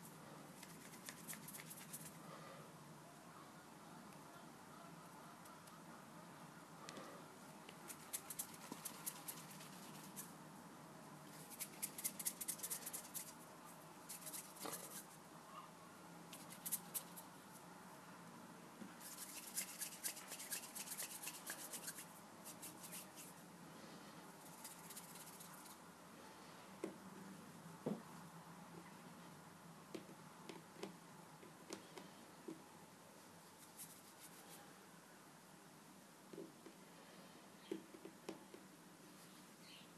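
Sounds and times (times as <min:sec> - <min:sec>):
hands rubbing play dough: 0:00.6 - 0:02.2, 0:07.7 - 0:10.4, 0:11.3 - 0:15.2, 0:16.3 - 0:17.6, 0:18.9 - 0:23.5, 0:24.4 - 0:25.8, 0:33.3 - 0:34.6.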